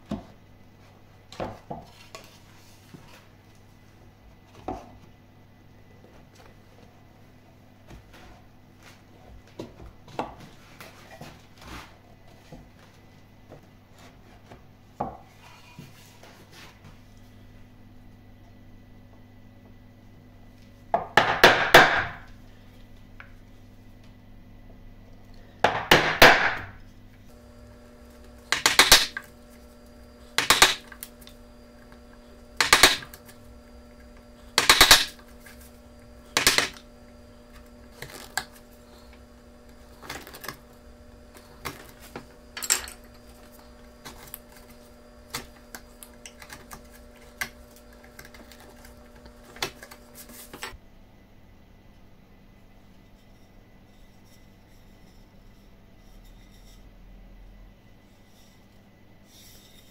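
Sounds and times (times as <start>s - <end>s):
chisel struck into wood: 21.0s - 22.2s, 25.7s - 26.7s.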